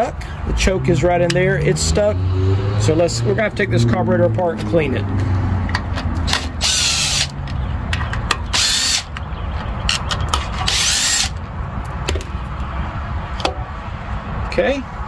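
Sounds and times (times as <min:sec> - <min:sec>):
cordless drill running: 0:06.4 - 0:07.3, 0:08.5 - 0:09.1, 0:10.7 - 0:11.4.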